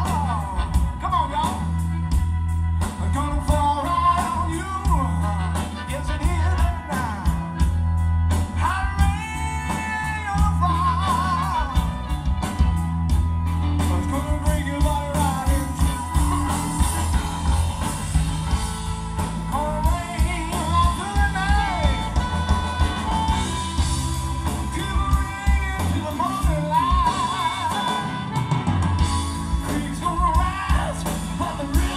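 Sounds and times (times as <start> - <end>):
man singing: 0.0 - 1.9, 2.8 - 12.6, 13.7 - 18.6, 19.2 - 31.9
bass guitar: 0.0 - 31.9
drums: 0.0 - 31.9
electric guitar: 0.0 - 31.9
harmonica: 0.0 - 31.9.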